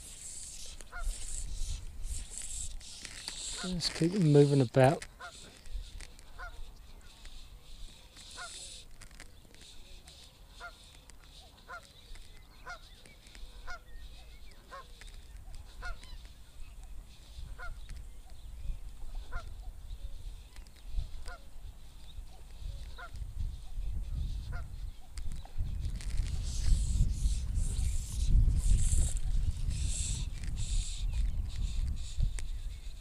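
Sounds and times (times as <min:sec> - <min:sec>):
wind rumbling on microphone: 0:00.0 - 0:04.2, 0:13.4 - 0:33.0
geese honking: 0:00.3 - 0:01.5, 0:02.4 - 0:05.5, 0:06.3 - 0:06.7, 0:08.3 - 0:08.8, 0:12.6 - 0:12.9, 0:13.6 - 0:13.8, 0:14.6 - 0:14.9, 0:15.7 - 0:16.2, 0:17.6 - 0:17.8, 0:19.2 - 0:19.5.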